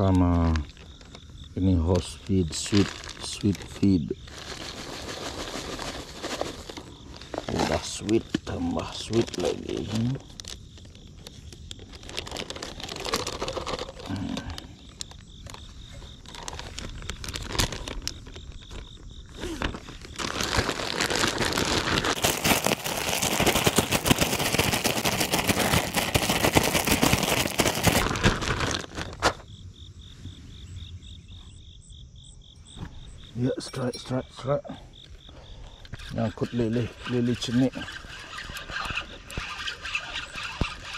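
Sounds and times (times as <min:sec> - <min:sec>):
insects chirping: 0:00.0 - 0:40.9
plastic bag crinkling: 0:01.9 - 0:29.4.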